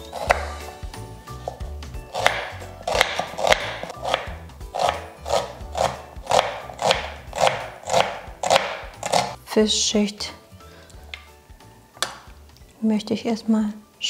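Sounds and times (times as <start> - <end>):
knife chopping on wooden board: 0.0 - 0.7, 1.4 - 9.4
quiet background music: 0.0 - 14.0.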